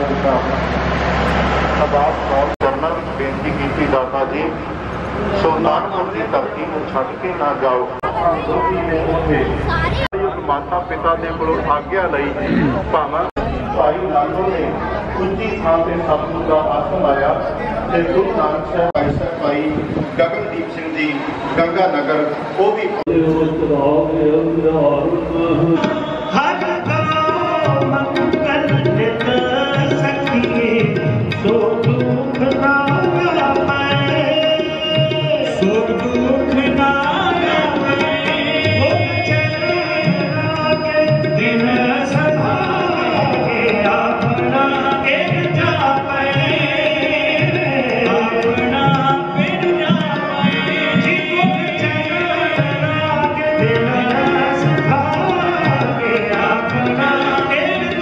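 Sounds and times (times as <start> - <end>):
harmoniums playing: 21.9 - 58.0
men singing: 23.1 - 58.0
tabla playing: 23.1 - 58.0.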